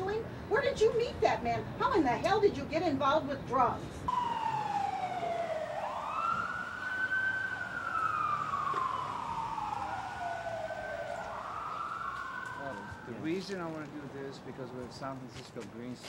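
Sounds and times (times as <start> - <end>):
siren wailing: 4.1 - 13.6.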